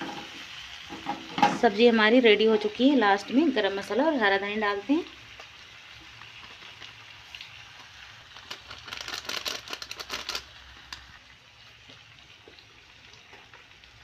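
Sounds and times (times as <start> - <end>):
food sizzling in a pan: 0.0 - 14.0
small crackles and ticks: 5.3 - 11.2, 11.8 - 14.0.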